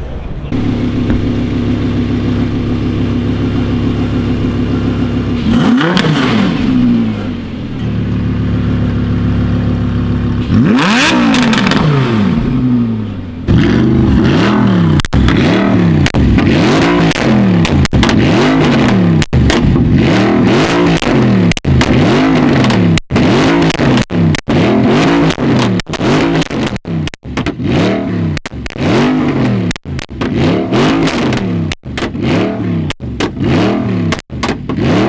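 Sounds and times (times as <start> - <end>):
sports car engine revving: 0.5 - 35.0.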